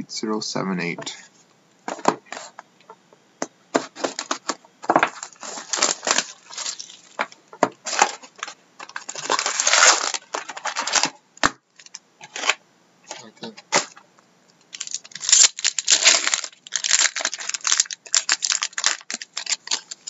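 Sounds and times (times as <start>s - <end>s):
plastic wrap crackling and crinkling: 3.8s - 14.0s, 14.6s - 20.0s
cardboard box tearing: 5.1s - 7.0s.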